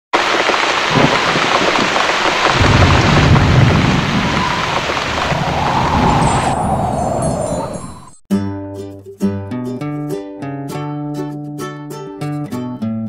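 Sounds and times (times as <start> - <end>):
steady rain falling: 0.2 - 7.8
thunder rumbling: 0.2 - 8.2.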